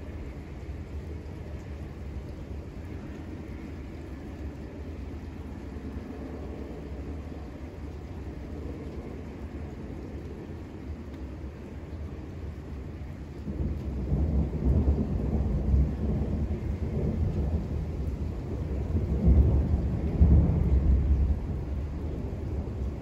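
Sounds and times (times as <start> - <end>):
rain hiss: 0.0 - 23.0
rolling thunder: 13.4 - 23.0.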